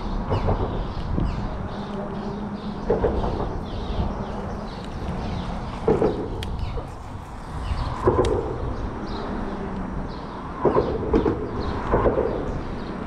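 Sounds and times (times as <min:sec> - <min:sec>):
road traffic rumble: 0:00.0 - 0:13.0
clattering knocks: 0:02.7 - 0:04.8, 0:05.5 - 0:06.9.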